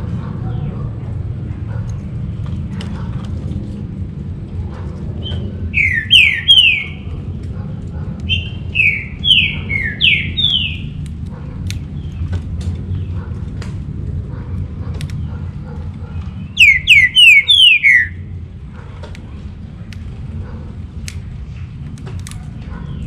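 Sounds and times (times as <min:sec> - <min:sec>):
bird whistling song: 0:05.2 - 0:07.1, 0:08.3 - 0:11.0, 0:16.5 - 0:18.2.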